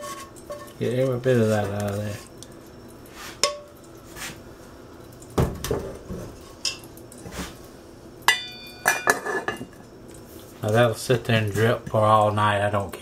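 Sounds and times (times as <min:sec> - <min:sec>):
metal lid clanging on pot: 0:08.3 - 0:09.7
heavy pot clanking: 0:08.3 - 0:09.8.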